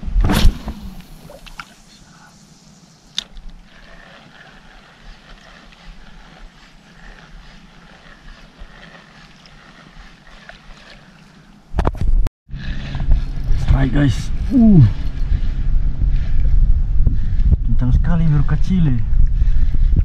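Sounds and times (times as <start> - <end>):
wind and water noise: 0.0 - 20.0
fishing reel whirring: 3.2 - 11.6.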